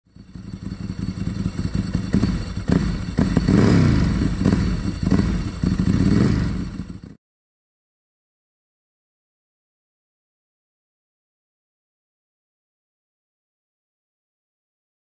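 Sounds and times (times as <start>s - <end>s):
motorcycle engine revving: 0.1s - 7.2s.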